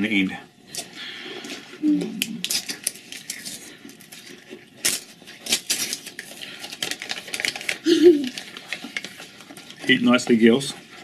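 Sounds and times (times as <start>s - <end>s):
snack wrapper crinkling: 2.2s - 10.4s.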